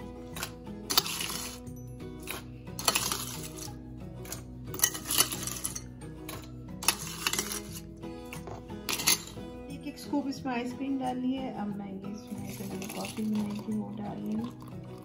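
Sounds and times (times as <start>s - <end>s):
background music: 0.0s - 15.0s
ice clattering in blender beaker: 12.4s - 14.8s.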